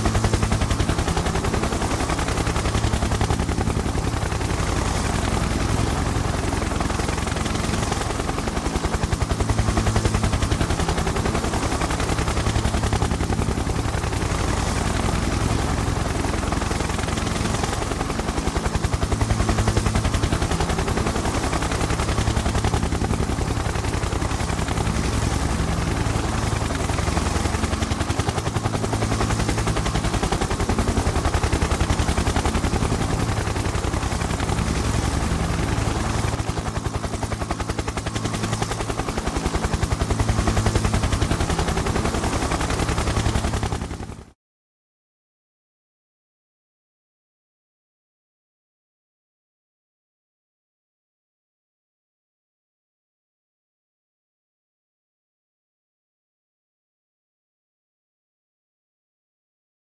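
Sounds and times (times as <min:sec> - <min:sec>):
helicopter rotor chopping: 0:00.0 - 0:44.4.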